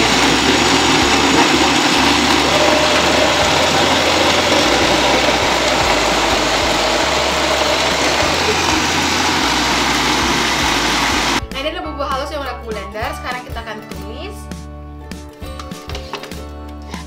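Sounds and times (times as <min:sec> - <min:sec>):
electric blender running: 0:00.0 - 0:11.4.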